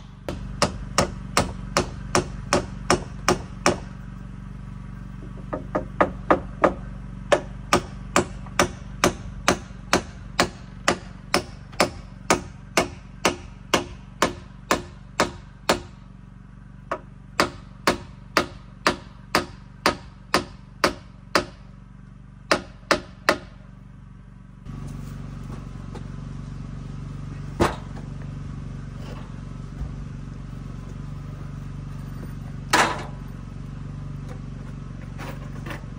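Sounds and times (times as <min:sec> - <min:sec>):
hammer driving nails into timber: 0:00.0 - 0:03.9, 0:05.3 - 0:15.9, 0:16.9 - 0:21.6, 0:22.5 - 0:23.6.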